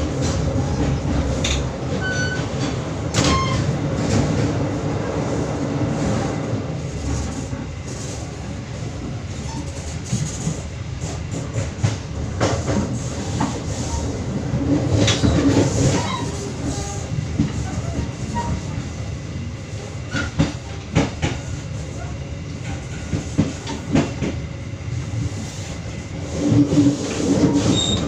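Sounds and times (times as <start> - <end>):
train wheels rumbling on rail: 0.0 - 28.0
train wheels clacking: 9.4 - 18.8, 20.1 - 24.4.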